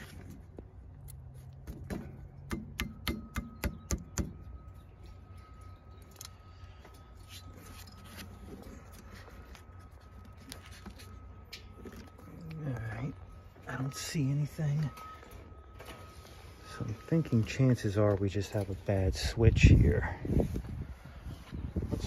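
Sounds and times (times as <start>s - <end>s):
rustling handling noise: 0.0s - 1.9s, 5.2s - 19.6s.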